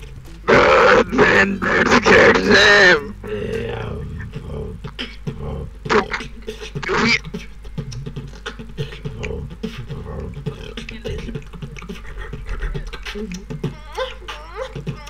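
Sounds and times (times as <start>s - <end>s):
human beatboxing: 3.2s - 15.0s.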